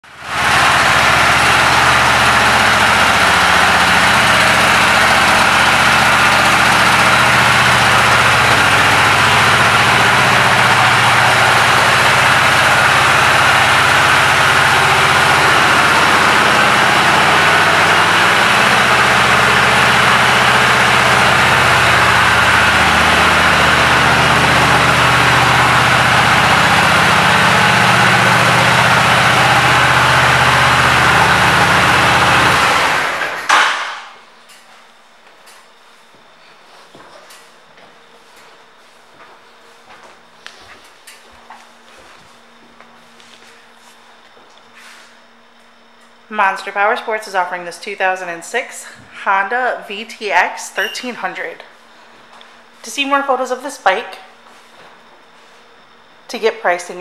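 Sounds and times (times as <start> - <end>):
motorcycle engine idling: 0.1 - 33.2.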